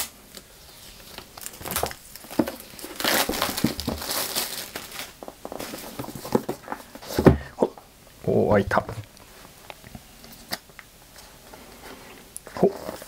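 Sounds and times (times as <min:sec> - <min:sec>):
plastic wrap crinkling: 0:00.0 - 0:07.1.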